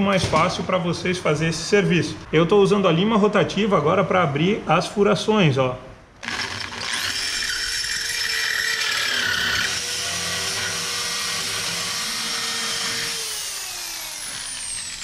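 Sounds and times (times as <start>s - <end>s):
rotary tool grinding metal: 6.2s - 15.0s.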